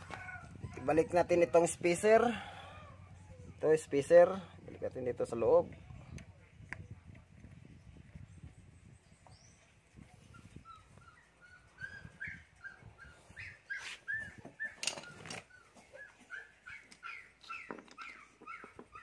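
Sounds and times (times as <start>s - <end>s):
dog whimpering: 0.0s - 3.6s, 10.4s - 19.0s.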